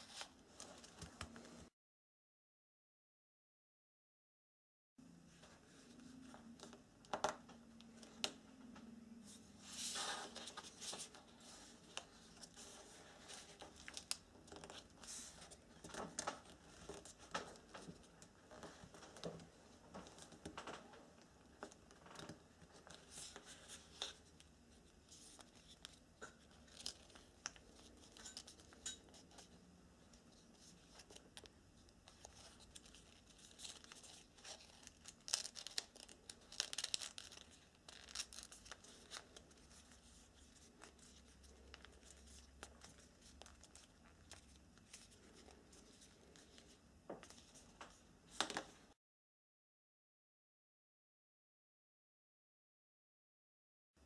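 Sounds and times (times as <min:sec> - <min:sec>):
paper rustling and crinkling: 0:09.3 - 0:21.0, 0:21.6 - 0:48.8.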